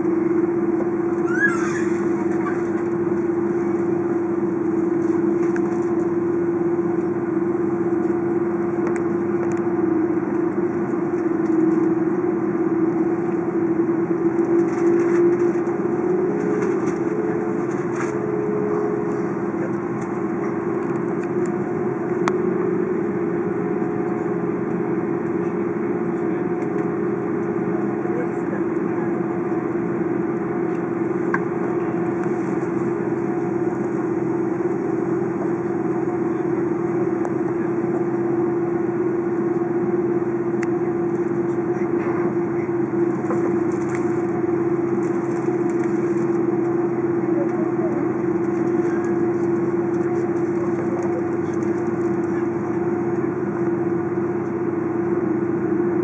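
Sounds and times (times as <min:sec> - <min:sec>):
airliner cabin drone: 0:00.0 - 0:56.0.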